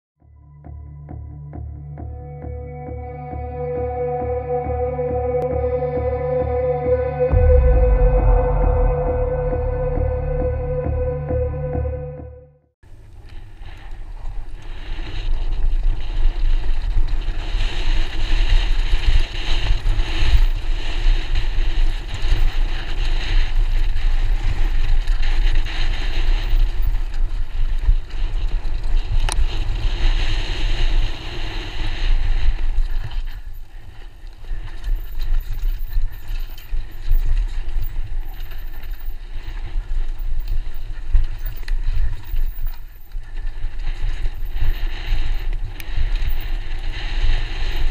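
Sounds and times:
bike tyres rolling on dirt: 12.8 - 47.9
wind buffeting microphone: 12.9 - 47.9.

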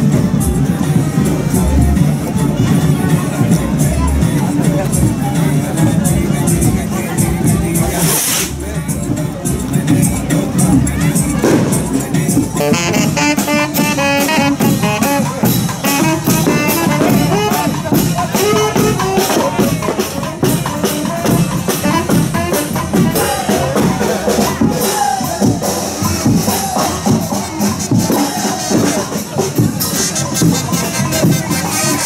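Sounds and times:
drums beat: 0.0 - 32.0
brass band music: 10.6 - 32.0
saxophone melody: 12.3 - 19.8, 20.8 - 23.7.

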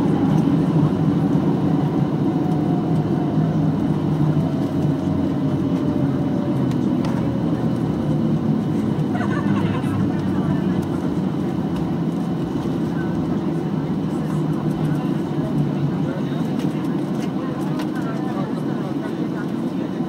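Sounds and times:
engine and wheel rumble: 0.0 - 20.0.

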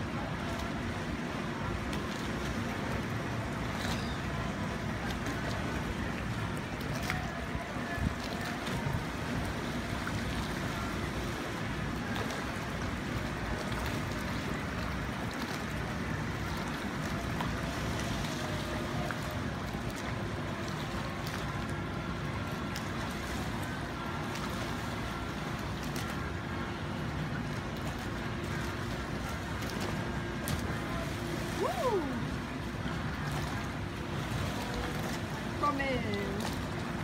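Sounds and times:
faint steady hum: 0.0 - 37.0
water lapping: 0.0 - 37.0.

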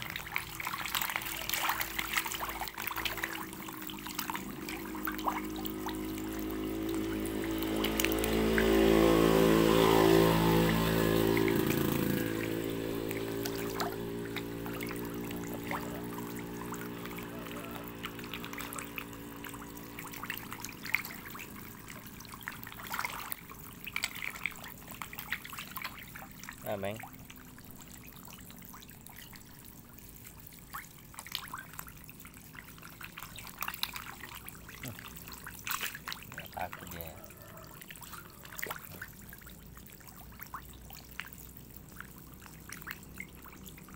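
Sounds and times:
droning hum: 0.0 - 30.7
fish splashing at water surface: 0.0 - 43.9.

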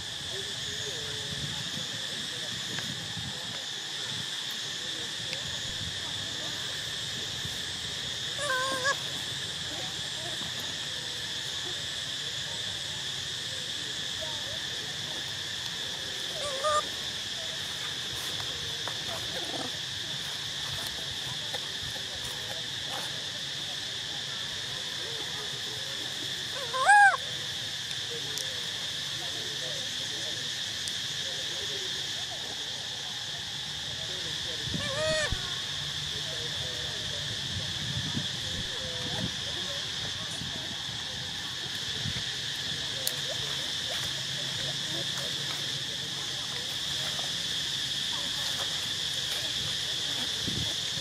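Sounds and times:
high insect drone: 0.0 - 51.0
animal calls: 8.3 - 9.1, 16.3 - 17.0, 26.5 - 27.2, 34.8 - 35.4.

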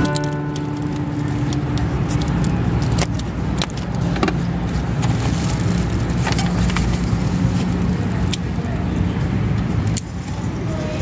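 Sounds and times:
low engine-like hum: 0.0 - 11.0.

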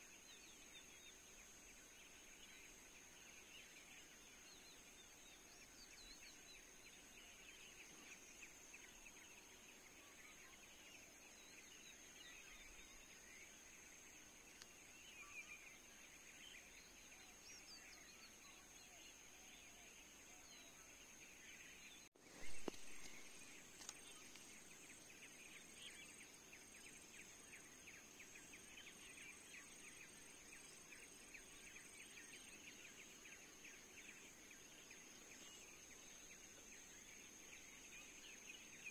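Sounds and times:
bird calls: 14.5 - 38.9
rapid insect chirring: 22.4 - 38.9.

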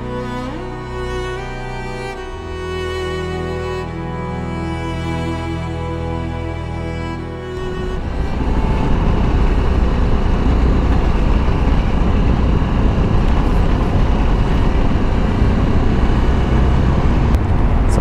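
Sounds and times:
wind noise: 7.4 - 18.0
motorcycle engine running: 7.6 - 18.0.

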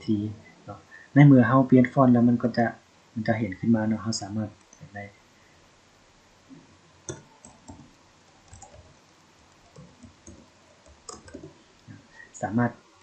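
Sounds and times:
keyboard keys clicking: 7.1 - 8.9, 9.6 - 11.5.

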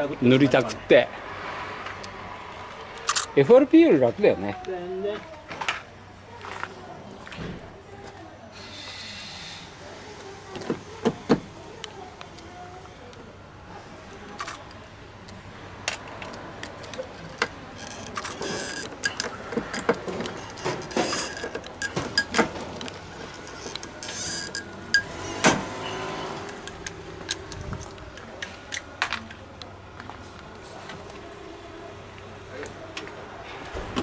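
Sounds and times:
metal tools clicking and clattering: 16.2 - 25.4.

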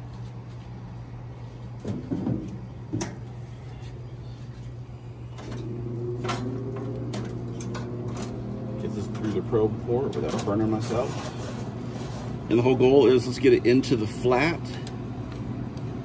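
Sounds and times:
steady low hum: 0.0 - 16.0
grill lid knocks and clicks: 1.8 - 3.3.

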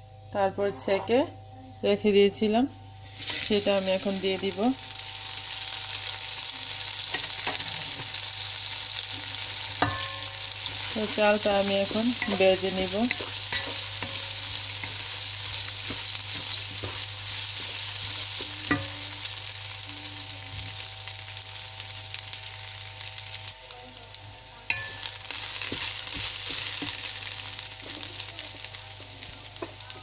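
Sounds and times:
rice sizzling in oil: 2.9 - 30.0
wooden spoon scraping a pot: 10.6 - 19.0.

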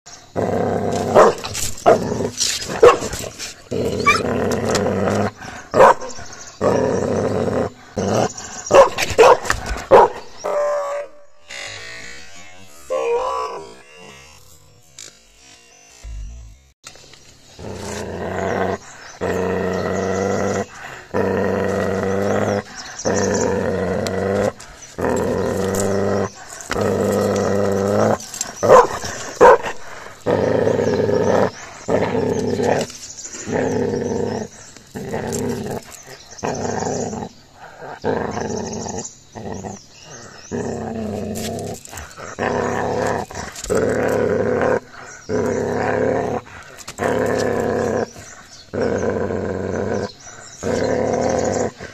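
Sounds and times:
puppy growling: 0.4 - 8.9, 17.6 - 51.9
puppy snarling: 0.4 - 10.2, 17.6 - 51.9.

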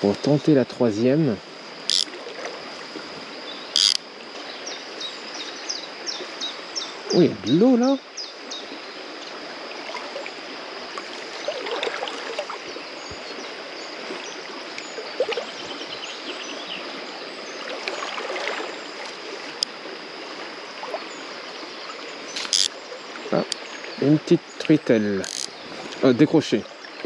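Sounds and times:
river flowing over stones: 8.0 - 27.0.

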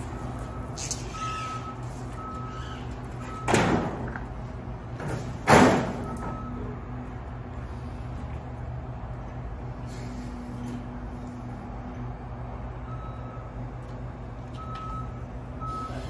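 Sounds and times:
forklift engine humming: 0.0 - 16.0
warning beeps: 14.6 - 16.0.

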